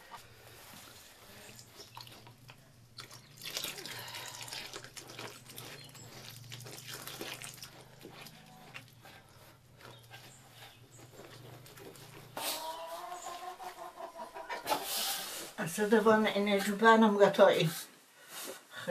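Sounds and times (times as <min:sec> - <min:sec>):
hand kneading wet flour: 0:00.0 - 0:13.3
milk pouring and splashing: 0:01.4 - 0:09.0.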